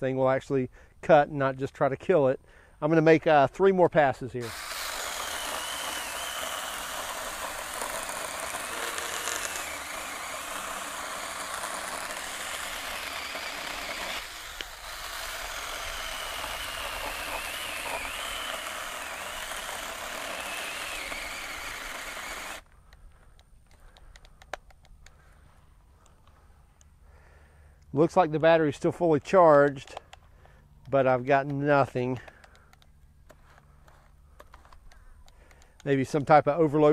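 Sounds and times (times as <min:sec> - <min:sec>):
electric chainsaw cutting wood: 0:04.4 - 0:22.7.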